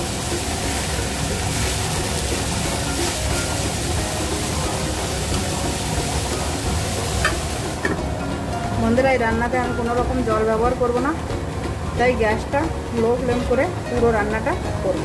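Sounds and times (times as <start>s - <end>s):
spatula stirring: 0.0s - 7.9s
cabbage sizzling in a pan: 0.0s - 9.1s.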